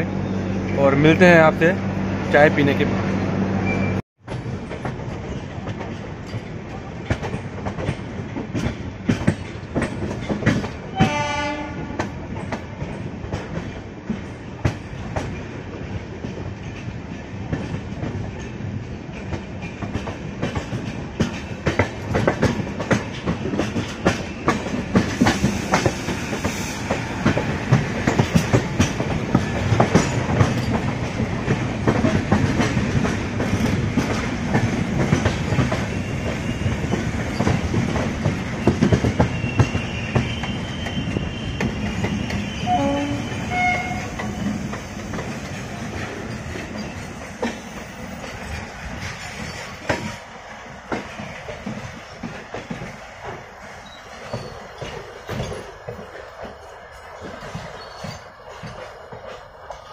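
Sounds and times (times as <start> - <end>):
train wheels clattering on rails: 4.2 - 59.9
train horn: 10.9 - 12.0, 42.3 - 44.2.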